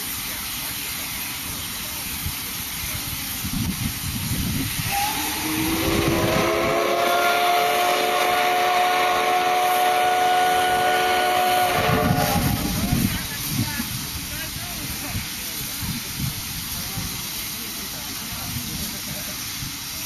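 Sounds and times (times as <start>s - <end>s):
steam hissing: 0.0s - 20.0s
steam whistle blast: 4.8s - 12.8s.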